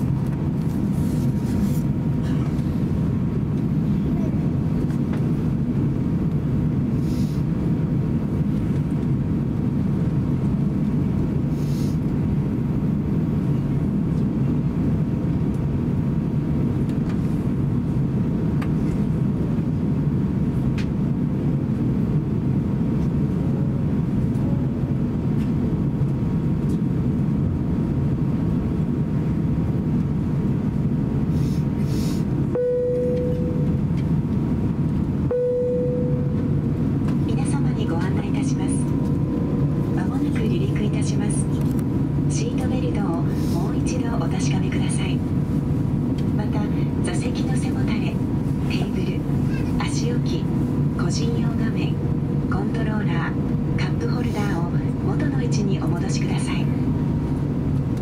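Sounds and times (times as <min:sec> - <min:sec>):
cabin air noise: 0:00.0 - 0:58.0
jet engines rumbling while taxiing: 0:00.0 - 0:58.0
short clear tone: 0:32.6 - 0:33.7.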